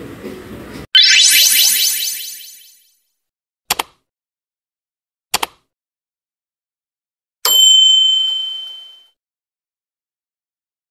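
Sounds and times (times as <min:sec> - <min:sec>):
double mouse click: 0:05.4 - 0:05.6.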